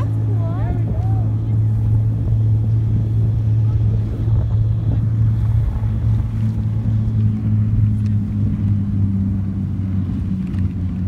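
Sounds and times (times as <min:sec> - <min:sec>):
engine droning steadily: 0:00.0 - 0:11.0
wind noise on microphone: 0:00.0 - 0:11.0.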